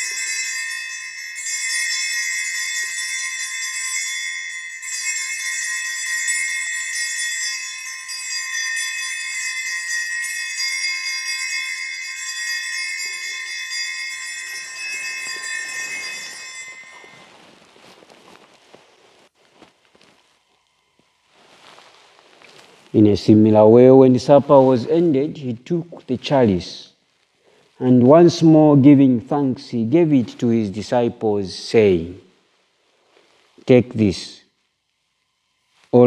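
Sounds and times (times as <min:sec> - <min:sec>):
bells jingling: 0:00.0 - 0:18.4.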